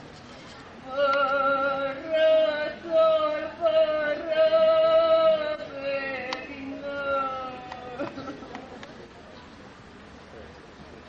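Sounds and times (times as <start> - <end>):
person singing chant-like melody: 0.8 - 8.7.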